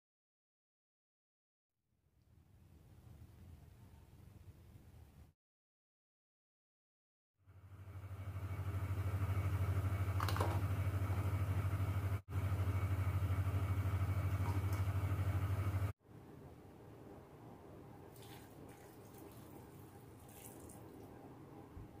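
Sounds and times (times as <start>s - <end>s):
low pulsing motor hum: 7.5s - 16.0s.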